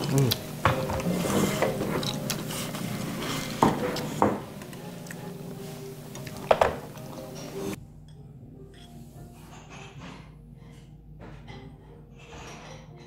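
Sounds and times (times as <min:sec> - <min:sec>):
utensils clinking on ceramic dishes: 0:06.2 - 0:10.4, 0:11.3 - 0:13.0.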